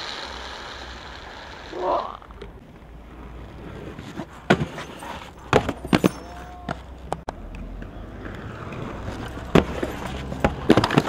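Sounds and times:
inline skates clacking on concrete: 2.3s - 11.0s.

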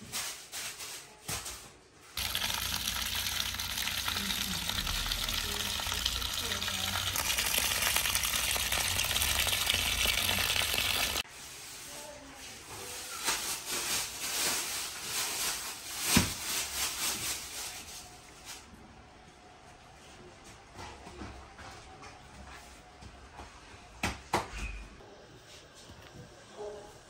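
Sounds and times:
water splashing into a bucket: 2.2s - 11.2s.

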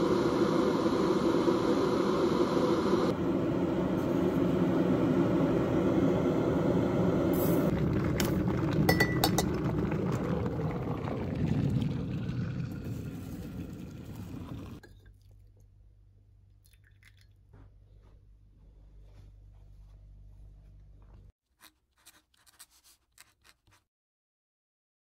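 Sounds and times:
electric kettle heating: 0.0s - 14.9s.

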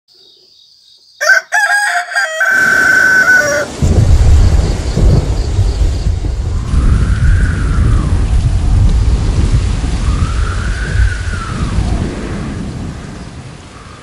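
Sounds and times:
rooster crowing: 1.2s - 3.8s
heavy rain: 2.0s - 14.0s
thunder rumbling: 2.6s - 14.0s.

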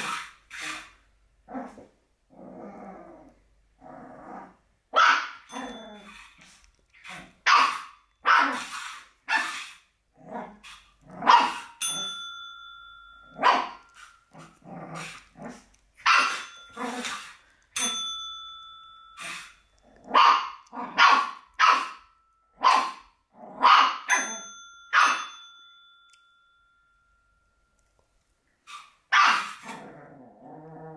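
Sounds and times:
puppy growling: 0.0s - 4.6s, 8.4s - 12.1s, 14.3s - 15.8s, 16.7s - 17.4s, 29.4s - 30.9s
desk bell dinging: 11.7s - 13.5s, 16.3s - 16.9s, 17.8s - 19.8s, 24.1s - 27.8s
puppy yapping: 28.7s - 29.8s.

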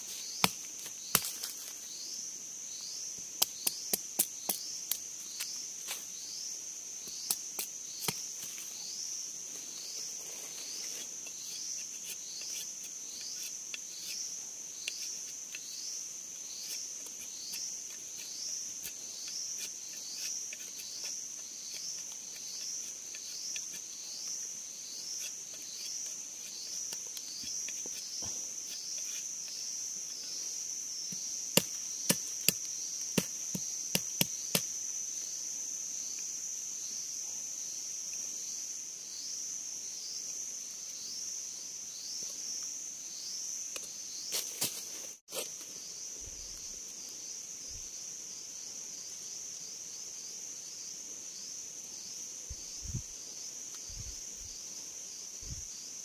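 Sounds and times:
pulsing high insect song: 0.0s - 56.0s
knife chopping bamboo: 31.1s - 34.7s.

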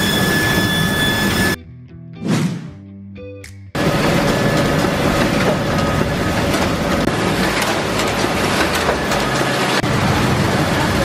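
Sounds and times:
bagging machine clattering: 3.8s - 11.0s
packaging line machinery rattling: 3.8s - 11.0s.

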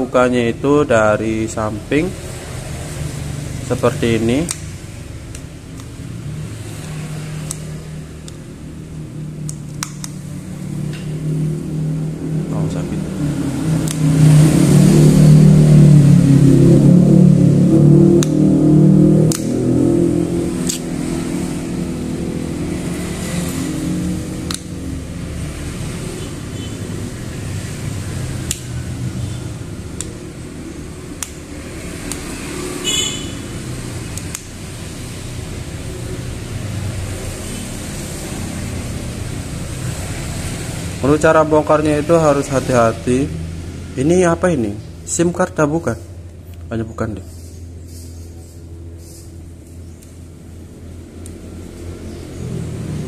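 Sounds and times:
engine-like hum: 0.0s - 53.0s
sharp plastic clicks: 9.4s - 10.2s, 24.4s - 24.7s, 28.4s - 28.7s, 31.1s - 32.3s.

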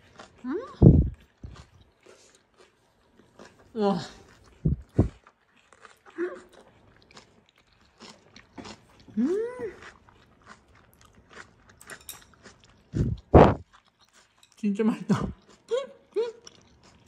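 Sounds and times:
crunchy chewing: 0.0s - 17.0s
person humming mm: 0.4s - 1.2s, 9.2s - 9.8s.

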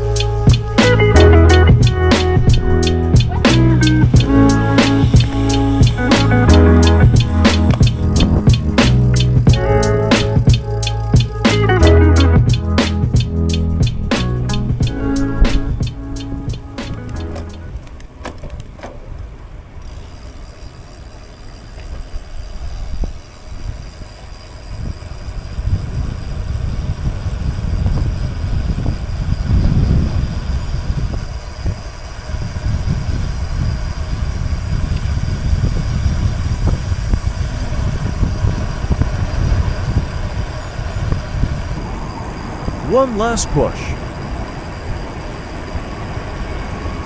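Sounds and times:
wind on microphone: 0.0s - 19.4s, 21.9s - 47.0s
road and tyre rumble: 0.0s - 47.0s.

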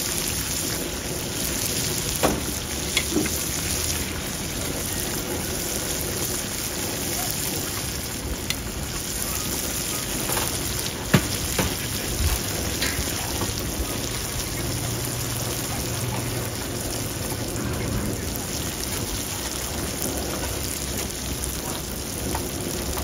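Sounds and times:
food sizzling in hot oil: 0.0s - 23.0s.

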